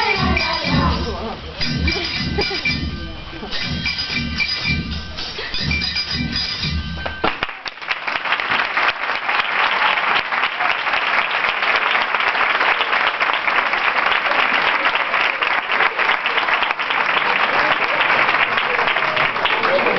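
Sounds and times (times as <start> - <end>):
music with low beats: 0.0 - 7.4
audience applause: 7.2 - 19.9.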